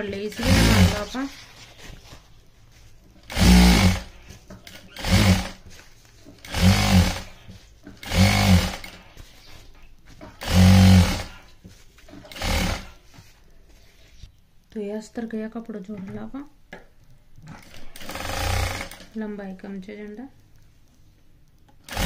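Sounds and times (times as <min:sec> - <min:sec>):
sewing machine stitching: 0:00.0 - 0:01.3, 0:03.2 - 0:05.7, 0:06.4 - 0:09.1, 0:10.3 - 0:11.4, 0:12.2 - 0:13.0, 0:17.5 - 0:19.2.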